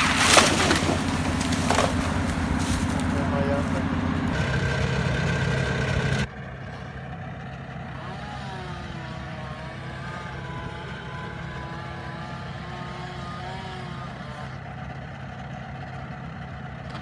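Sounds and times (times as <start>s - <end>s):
engine running: 0.0s - 17.0s
quieter engine with wavering pitch: 0.0s - 17.0s.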